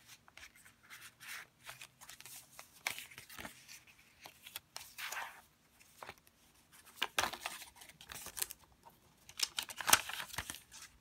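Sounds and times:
paper pages turning: 0.0s - 8.6s, 9.2s - 11.0s.

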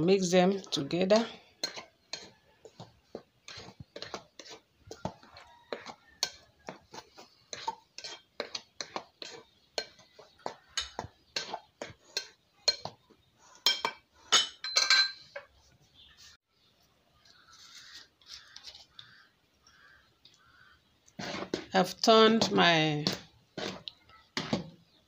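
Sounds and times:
soft mixing sounds: 0.0s - 14.4s, 15.1s - 25.0s
metal utensil clinking glass bowl: 1.1s - 2.3s, 13.6s - 15.5s.

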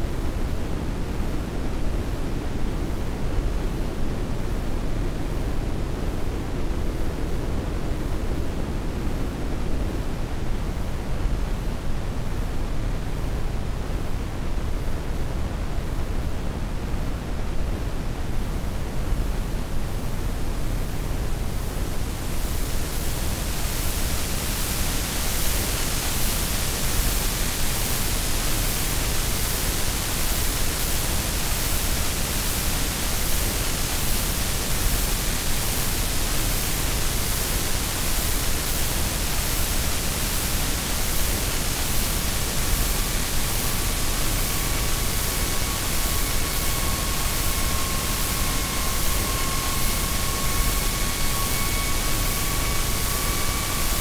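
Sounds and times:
loud static hiss: 0.0s - 54.0s
faint steady high tone: 43.4s - 54.0s.

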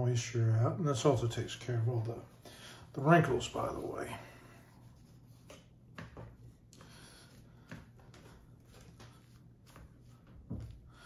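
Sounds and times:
low room hum: 0.0s - 11.0s
hands rustling paper towels: 2.3s - 11.0s.

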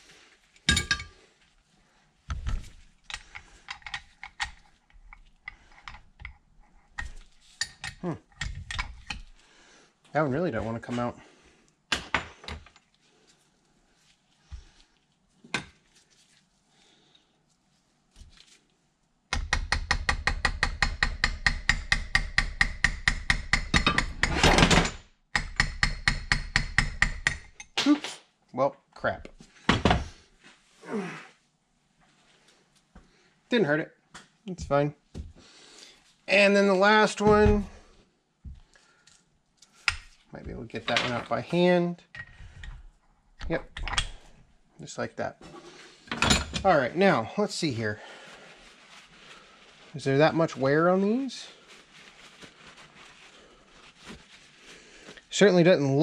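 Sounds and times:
hammer tapping steel punch: 19.3s - 24.4s, 25.4s - 27.5s.

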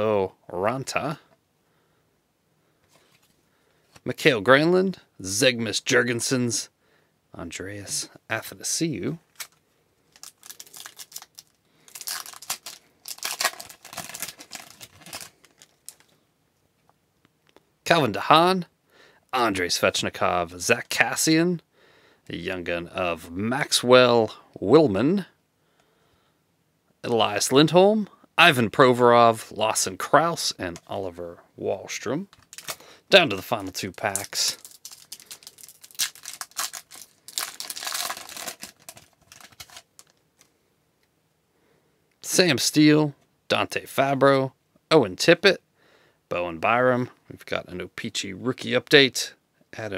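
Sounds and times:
card pack wrapper crinkling and tearing: 9.3s - 16.1s, 32.2s - 40.5s.

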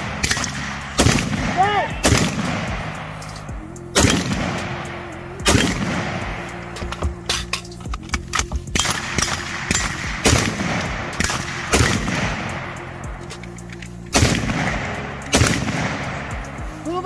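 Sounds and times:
rifle gunshots echoing: 0.0s - 3.2s, 4.0s - 6.4s, 8.8s - 12.8s, 14.1s - 16.3s.

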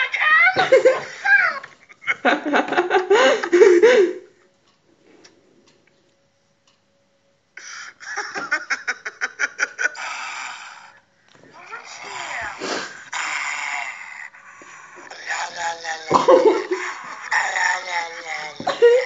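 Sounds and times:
man laughing hard: 1.8s - 4.3s, 7.8s - 10.0s, 16.1s - 17.5s, 18.6s - 19.0s.

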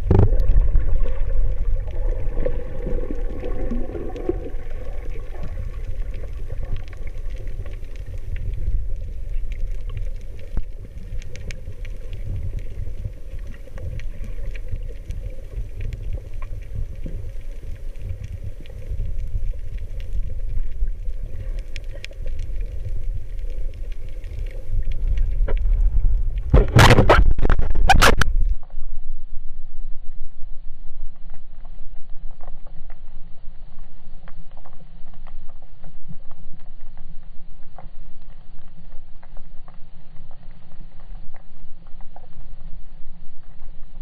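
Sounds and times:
muffled underwater rumble: 0.0s - 44.0s
faint clicks: 4.9s - 26.6s
loud knocks and scrapes: 26.5s - 28.3s.

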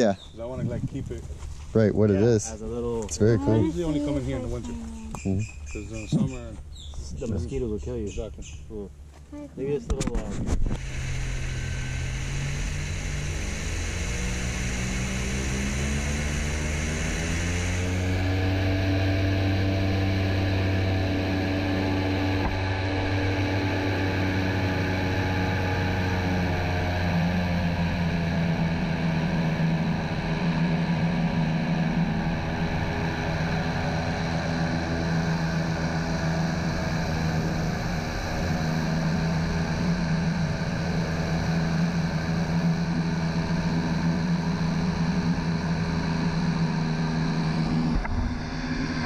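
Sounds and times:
airboat engine drone: 10.1s - 49.0s.

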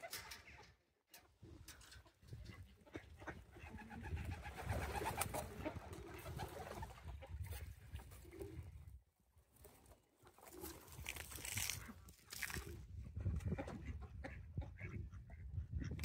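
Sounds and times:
pigeons cooing: 8.1s - 8.9s.

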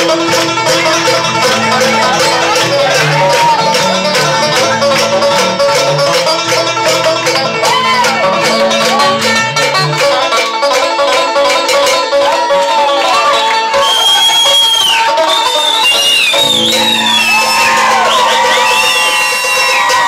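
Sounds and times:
low bass notes: 0.0s - 10.3s
fast bluegrass banjo: 0.0s - 20.0s.

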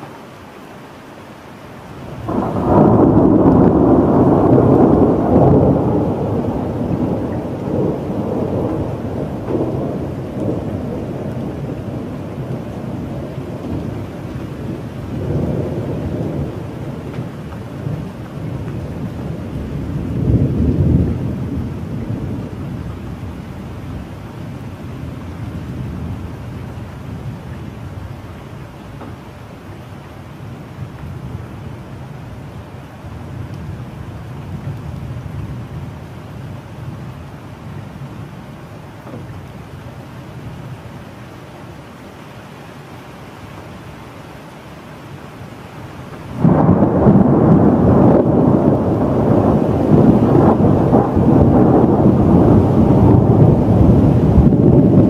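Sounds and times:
steady rain: 0.0s - 55.0s
thunder rumbling: 2.0s - 28.3s, 46.1s - 55.0s.

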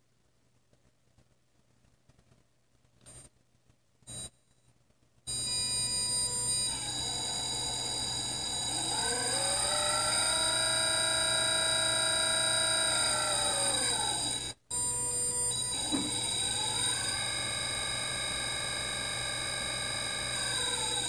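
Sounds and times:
electric motor whine: 5.3s - 21.0s
high-pitched electronic whine: 5.3s - 21.0s.

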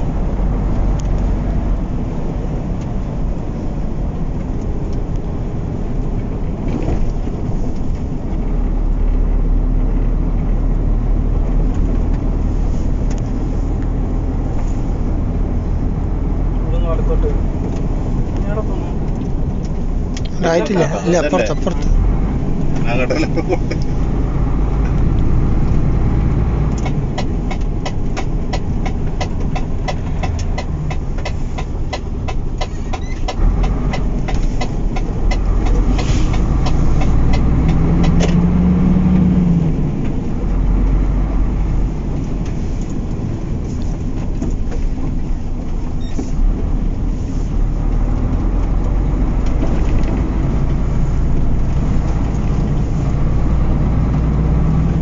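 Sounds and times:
truck engine and road rumble: 0.0s - 55.0s.

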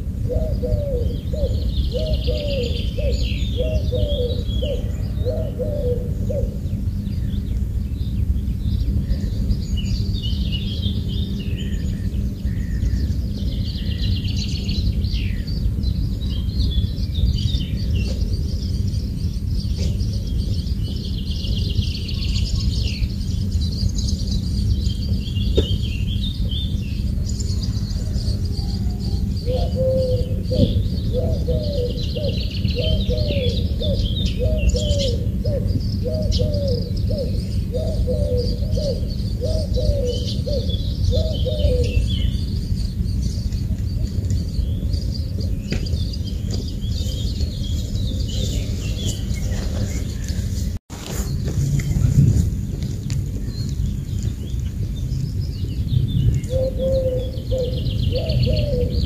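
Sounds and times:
birds chirping and singing: 0.0s - 59.0s
steady low rumble: 0.0s - 59.0s
low-pitched repeating bird call: 25.4s - 42.5s, 56.4s - 59.0s.

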